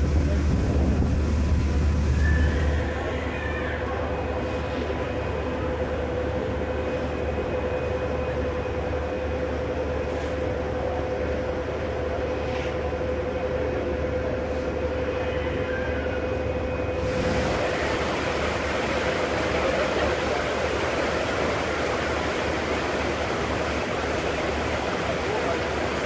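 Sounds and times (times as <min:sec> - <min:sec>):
wind and water rushing: 0:00.0 - 0:06.8, 0:16.9 - 0:26.0
ferry engine droning: 0:00.0 - 0:26.0
loud rushing hiss: 0:16.9 - 0:26.0.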